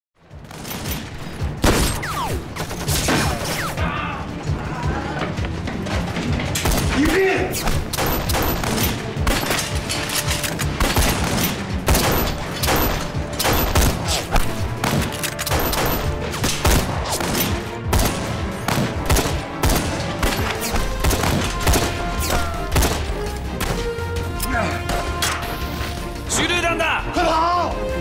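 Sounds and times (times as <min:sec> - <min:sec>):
film score music: 0:00.2 - 0:28.0
gunfire volleys: 0:00.4 - 0:03.8, 0:06.6 - 0:23.8.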